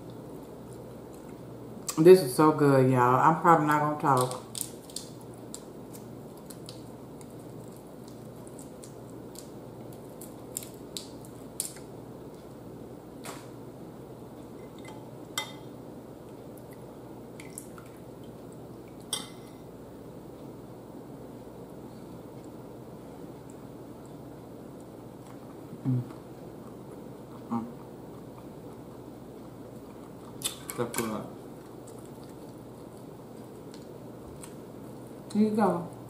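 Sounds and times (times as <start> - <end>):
faint room hum: 0.0 - 36.0.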